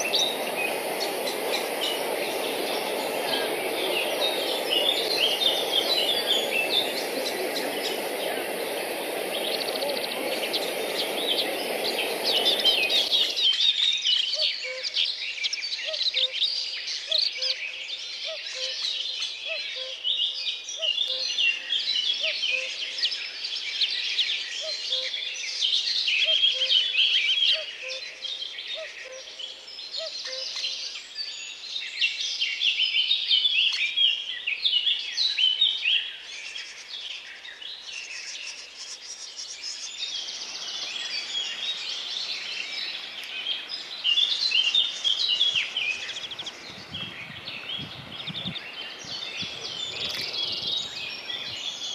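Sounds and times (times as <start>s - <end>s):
steady rushing noise: 0.0s - 13.5s
songbirds chirping and singing: 0.0s - 51.9s.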